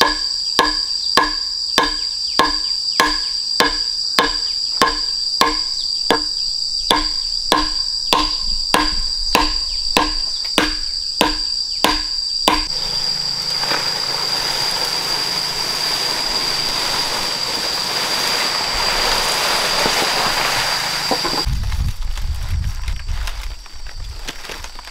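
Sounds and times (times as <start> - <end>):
ringing knocks: 0.0 - 12.8
high-pitched insect drone: 0.0 - 21.5
steady rushing hiss: 12.6 - 22.8.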